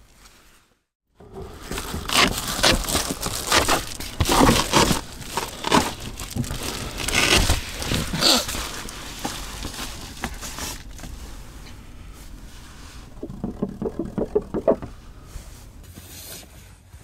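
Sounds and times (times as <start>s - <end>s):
bedding rustling: 1.5s - 15.9s
soft bumps: 9.1s - 15.8s.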